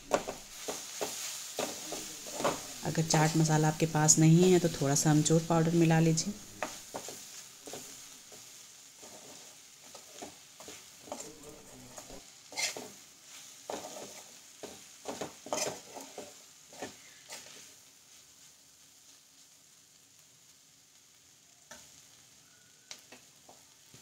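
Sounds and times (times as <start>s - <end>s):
spatula scraping pan: 0.0s - 3.5s, 4.6s - 17.7s
onions sizzling in oil: 0.0s - 24.0s.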